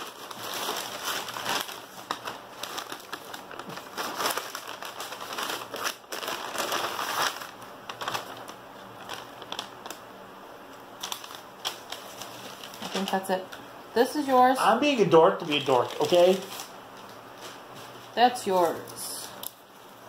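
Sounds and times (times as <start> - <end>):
shopping bag rustling: 0.0 - 10.0, 11.0 - 13.2, 15.4 - 18.9.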